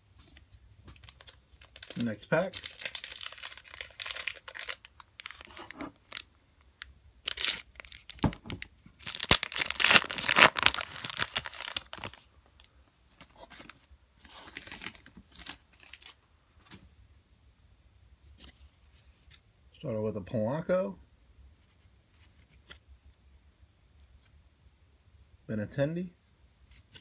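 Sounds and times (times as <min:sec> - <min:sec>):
foil wrapper crinkling: 0:01.0 - 0:06.3, 0:07.2 - 0:08.4, 0:09.0 - 0:12.3.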